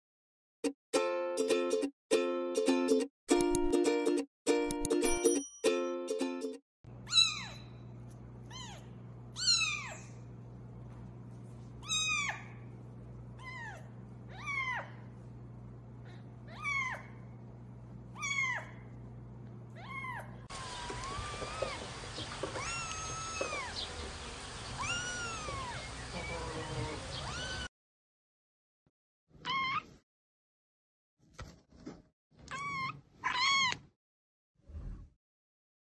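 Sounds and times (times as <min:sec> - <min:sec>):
kitten meowing: 0:07.0 - 0:07.7, 0:08.5 - 0:10.1, 0:11.8 - 0:12.5, 0:13.4 - 0:15.0, 0:16.5 - 0:17.2, 0:18.2 - 0:18.8, 0:19.8 - 0:20.3, 0:22.4 - 0:23.8, 0:24.8 - 0:25.8, 0:27.2 - 0:27.7, 0:29.4 - 0:29.8, 0:32.5 - 0:33.8.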